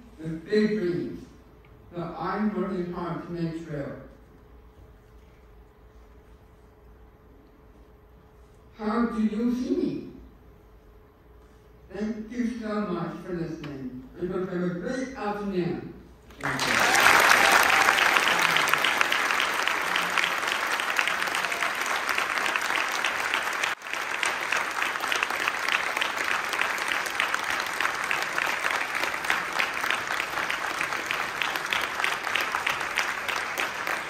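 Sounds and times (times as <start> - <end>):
audience applauding: 16.3 - 34.0.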